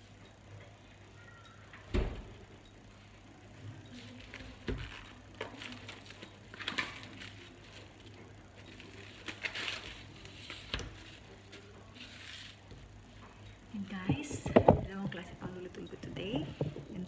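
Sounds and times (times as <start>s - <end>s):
packaging rustling: 4.0s - 12.6s
objects knocking on a counter: 14.0s - 15.6s, 16.4s - 17.0s.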